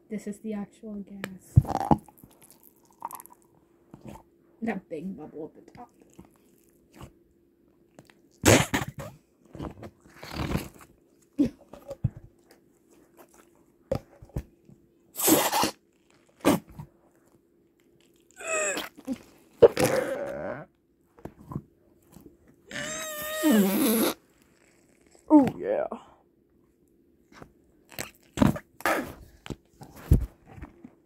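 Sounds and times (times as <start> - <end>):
fart noises: 8.4 - 10.9, 15.2 - 15.8, 18.6 - 20.7, 22.7 - 25.3, 27.9 - 29.4.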